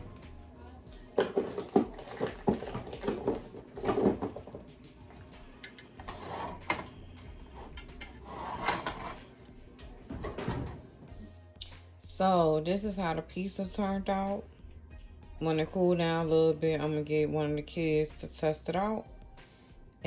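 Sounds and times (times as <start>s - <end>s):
drawers knocking and clattering: 1.2s - 4.7s, 8.4s - 9.2s, 10.0s - 11.0s.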